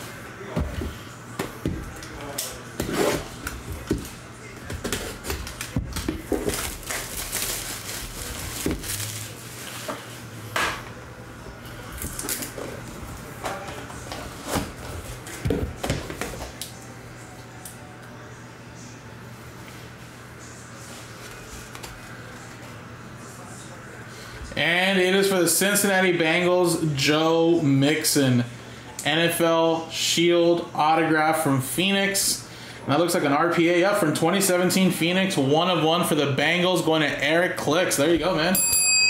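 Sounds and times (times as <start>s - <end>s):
plastic shrink wrap crinkling: 5.2s - 10.0s.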